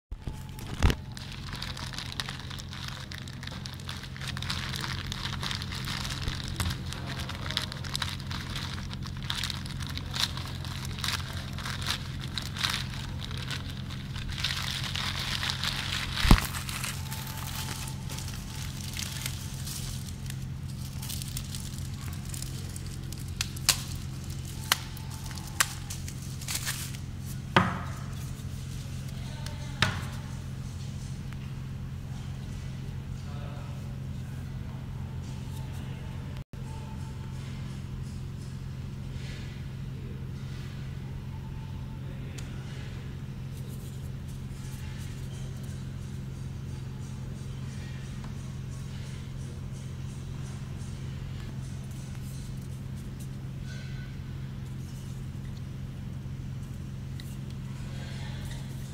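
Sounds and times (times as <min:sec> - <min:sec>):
steady low hum: 0:00.1 - 0:58.9
plastic wrapping crinkling: 0:00.2 - 0:30.2.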